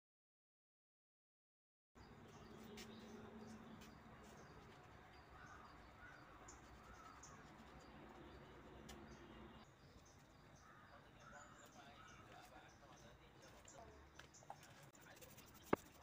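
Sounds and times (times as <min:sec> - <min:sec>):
faint bird chirps: 0:02.0 - 0:16.0.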